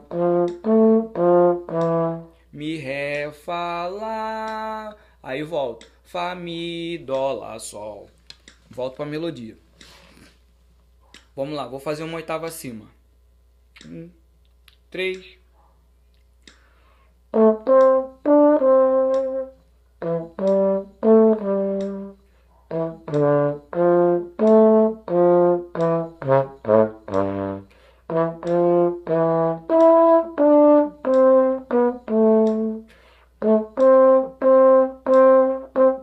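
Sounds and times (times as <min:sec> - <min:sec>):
slide trombone melody: 0:00.0 - 0:04.9, 0:17.3 - 0:36.0.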